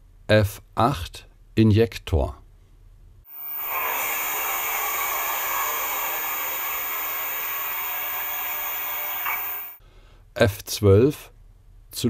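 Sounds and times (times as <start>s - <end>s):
steam hissing: 3.3s - 9.8s.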